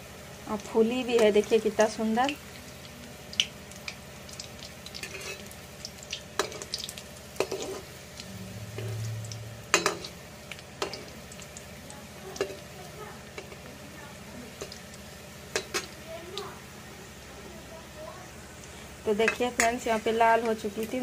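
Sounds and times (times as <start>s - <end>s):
fritters sizzling in oil: 0.0s - 21.0s
metal skimmer clinking on pan: 19.2s - 19.9s.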